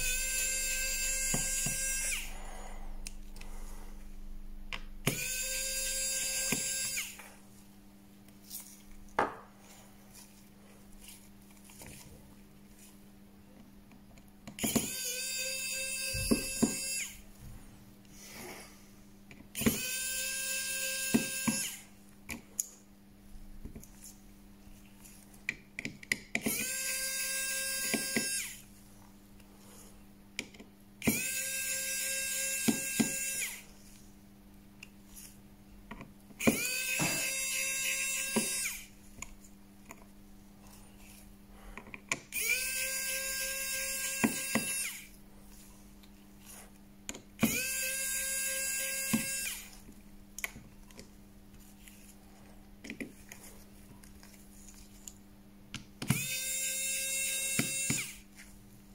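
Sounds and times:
small electric tool whining: 0:00.0 - 0:02.4, 0:05.0 - 0:07.4, 0:14.5 - 0:17.2, 0:19.6 - 0:21.9, 0:26.4 - 0:28.7, 0:31.0 - 0:34.0, 0:36.4 - 0:39.0, 0:42.1 - 0:45.2, 0:47.4 - 0:49.9, 0:56.0 - 0:58.3.

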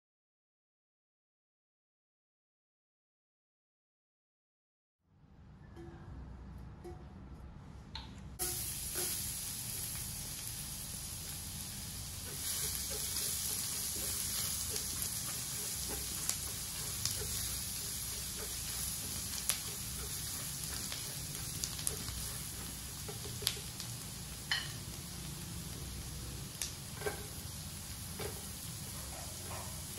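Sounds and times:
spatula clicking and scraping pan: 0:08.4 - 0:10.0, 0:11.7 - 0:24.8, 0:26.5 - 0:29.9
garlic sizzling in hot oil: 0:08.4 - 0:29.9.

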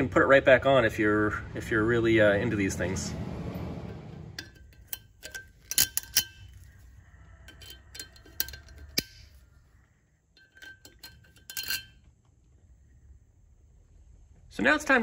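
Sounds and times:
pliers clicking on metal clips: 0:04.5 - 0:06.7.

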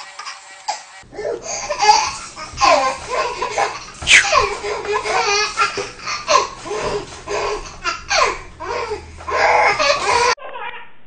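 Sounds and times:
baby laughing: 0:01.2 - 0:10.9.

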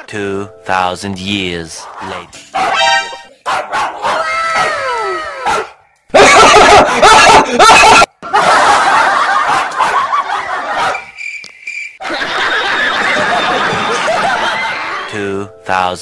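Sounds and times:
loud laughter and cackling: 0:06.1 - 0:11.1, 0:12.0 - 0:15.1.

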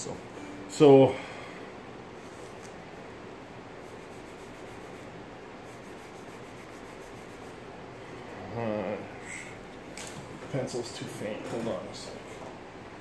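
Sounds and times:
pencil scratching on paper: 0:03.8 - 0:07.6
man murmuring: 0:08.3 - 0:09.6.

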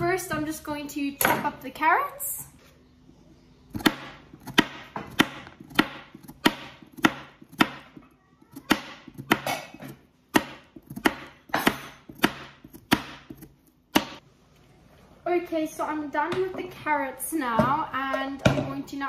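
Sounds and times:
knife chopping carrot on board: 0:03.8 - 0:14.2.

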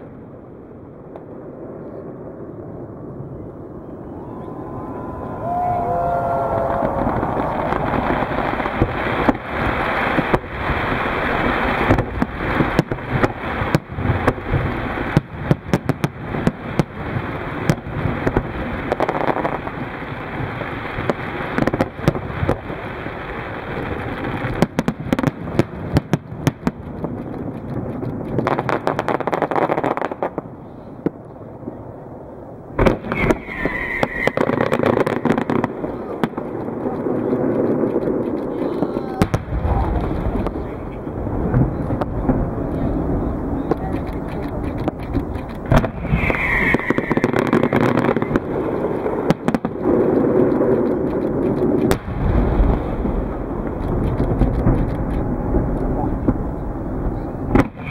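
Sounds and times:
fireworks bursting and crackling: 0:00.0 - 0:57.9
rushing hiss: 0:45.8 - 0:48.2.

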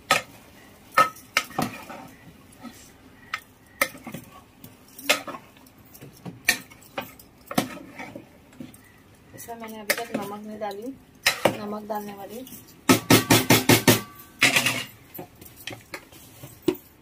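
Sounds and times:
metal spoon clinking on pot: 0:03.3 - 0:07.9, 0:08.8 - 0:17.0.

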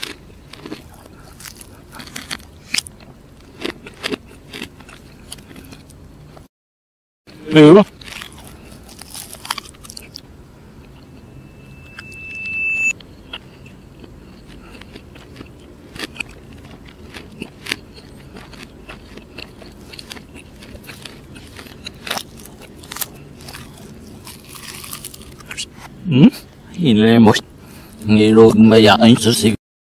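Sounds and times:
reversed chewing crunches: 0:00.0 - 0:06.5, 0:07.8 - 0:11.2, 0:13.2 - 0:26.0
high steady tone: 0:10.8 - 0:13.2.

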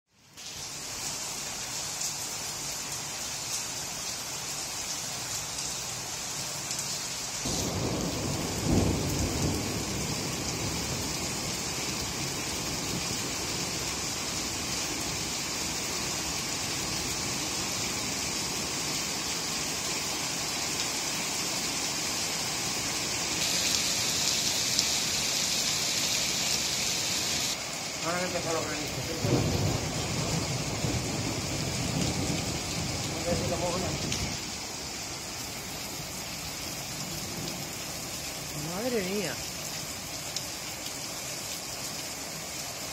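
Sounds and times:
heavy rain with hail on street: 0:00.1 - 0:42.9
thunder rumble: 0:07.5 - 0:11.4, 0:28.8 - 0:34.4.

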